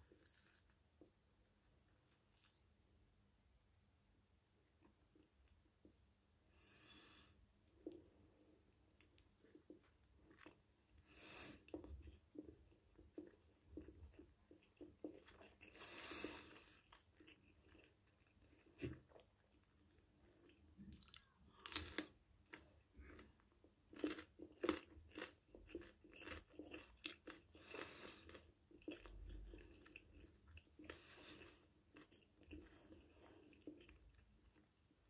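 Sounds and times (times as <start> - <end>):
person chewing crunchy pepper: 9.0 - 35.0.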